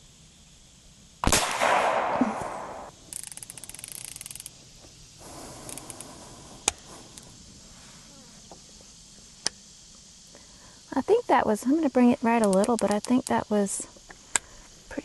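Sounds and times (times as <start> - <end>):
air hiss: 0.0 - 15.0
air rifle shot crack: 1.2 - 3.0.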